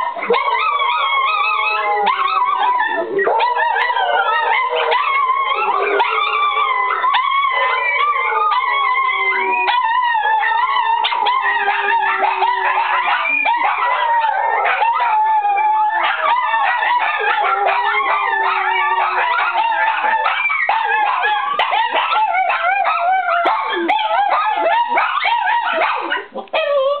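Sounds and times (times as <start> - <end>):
small dogs howling and yipping: 0.0 - 27.0
person howling: 5.2 - 12.8.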